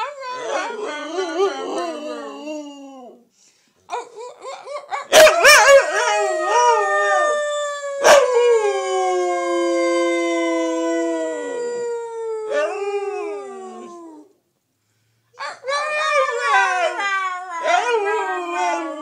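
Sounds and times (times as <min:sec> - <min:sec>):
dog howling: 0:04.3 - 0:14.3, 0:15.4 - 0:19.0.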